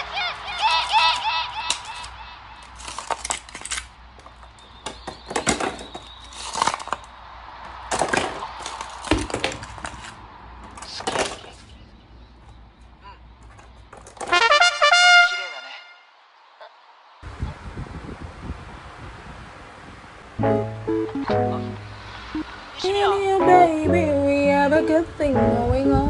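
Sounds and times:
plastic ice tray twisting: 1.8 - 3.9
ice cubes cracking and clattering: 1.9 - 3.9, 5.4 - 7.1.

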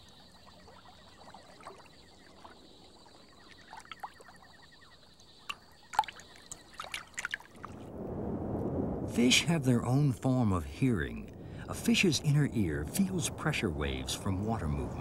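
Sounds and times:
water dripping: 0.0 - 7.9
sharp water splashes: 5.5 - 7.9.

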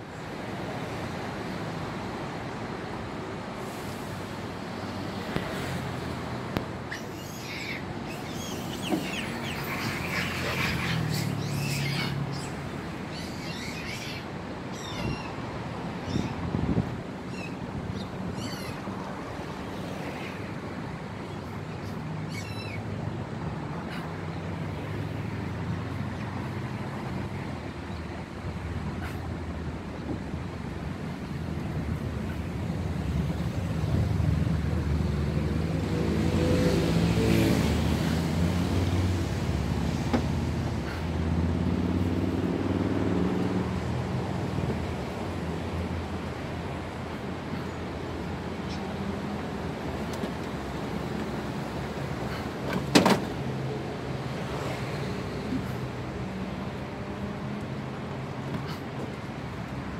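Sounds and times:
vehicle engines running: 15.4 - 59.9
vehicle passing closer: 34.0 - 46.2.

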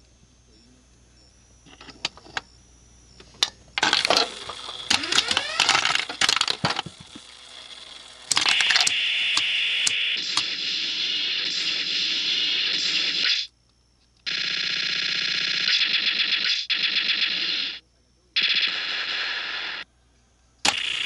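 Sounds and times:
sharp clicks: 3.2 - 7.3, 8.3 - 10.6
electronic sound effects: 3.8 - 7.1, 8.3 - 13.5, 18.4 - 19.8.

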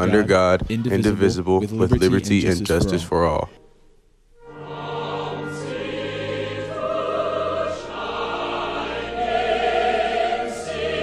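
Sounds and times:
choir singing long held notes: 4.4 - 11.0.

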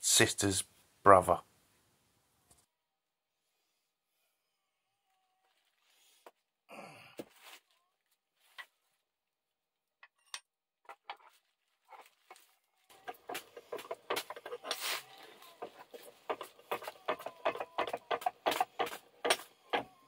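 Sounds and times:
bubble wrap crinkling: 5.1 - 6.5, 11.0 - 18.2
metal knocks and clicks: 13.0 - 19.9.

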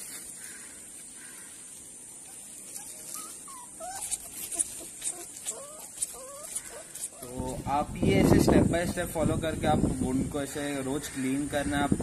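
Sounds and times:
dog whimpering: 2.7 - 7.3.

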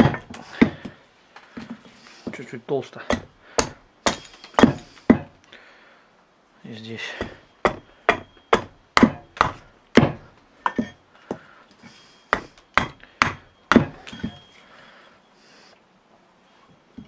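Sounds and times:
hatchet chopping wood: 0.0 - 1.0, 3.0 - 5.4, 7.2 - 11.4, 12.3 - 14.4.

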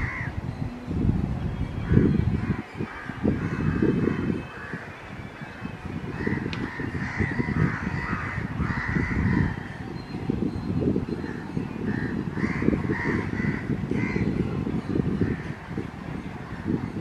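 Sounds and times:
crows cawing: 0.0 - 0.3, 6.1 - 9.8, 11.9 - 14.3.

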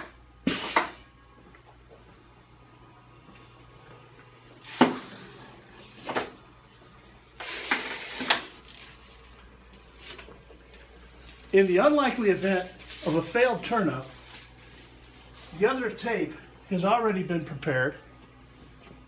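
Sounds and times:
paper tape hissing: 11.2 - 15.6.

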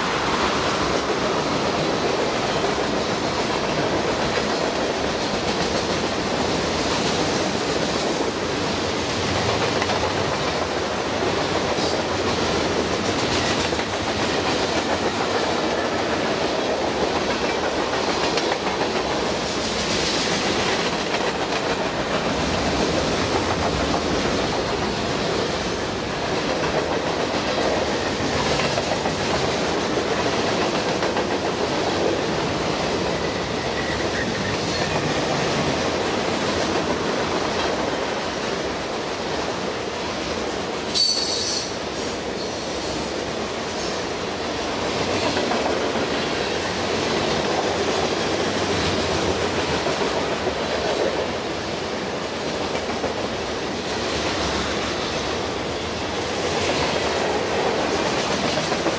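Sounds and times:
train wheels rumbling on rail: 0.0 - 58.9
high-pitched metallic squeal: 33.3 - 34.8, 40.9 - 41.8.

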